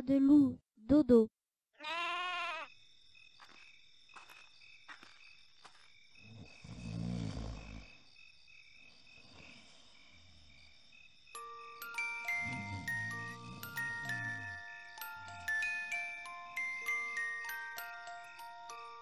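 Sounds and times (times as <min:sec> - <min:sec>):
crickets chirping: 0:01.8 - 0:19.0
animal snoring: 0:06.2 - 0:08.1, 0:09.0 - 0:10.9, 0:12.0 - 0:15.6.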